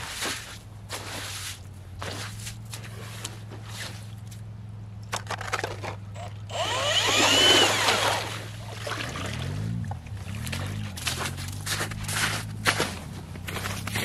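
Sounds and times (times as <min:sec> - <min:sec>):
ice auger grinding ice: 0:05.5 - 0:08.6, 0:10.4 - 0:14.0
drill motor whine: 0:06.2 - 0:08.3.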